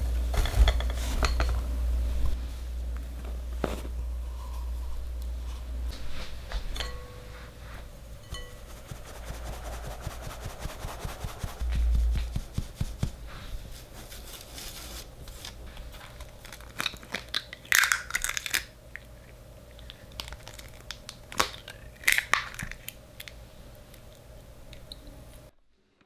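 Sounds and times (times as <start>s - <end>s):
eggshells cracking: 16.0s - 23.4s.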